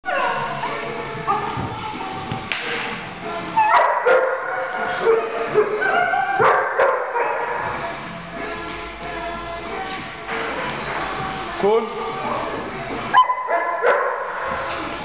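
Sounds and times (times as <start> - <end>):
dogs yipping and barking: 0.0 - 8.0, 10.4 - 11.6, 12.2 - 15.0.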